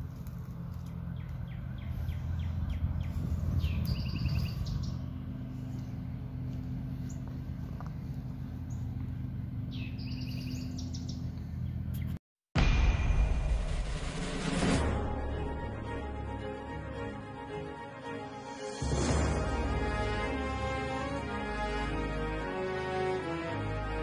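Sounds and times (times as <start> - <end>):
steady low hum: 0.0 - 17.7
small birds chirping: 0.1 - 12.2
trilled bird call: 1.2 - 5.2, 9.7 - 11.3.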